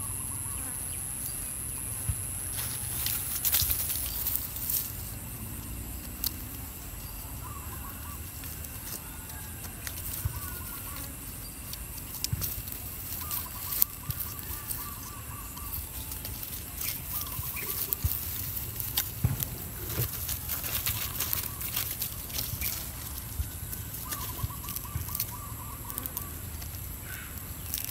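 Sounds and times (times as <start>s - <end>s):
steady high hiss: 0.0s - 27.9s
wavering animal calls: 4.8s - 11.9s, 13.0s - 27.9s.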